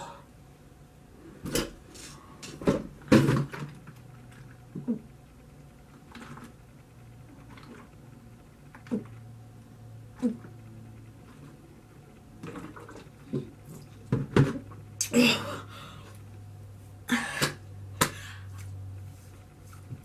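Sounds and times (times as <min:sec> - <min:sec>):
person gulping milk: 0:12.4 - 0:13.9
plastic jug handled: 0:12.4 - 0:14.8.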